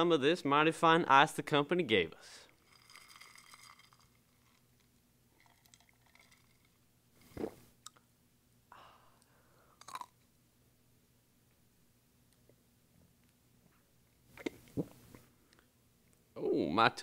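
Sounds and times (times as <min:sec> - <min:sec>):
chewing ice crunches: 0:09.8 - 0:10.1.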